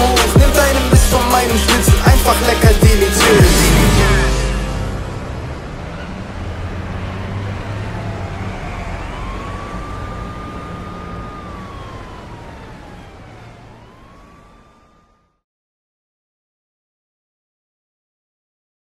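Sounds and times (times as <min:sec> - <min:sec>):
siren wailing: 0:03.2 - 0:15.4.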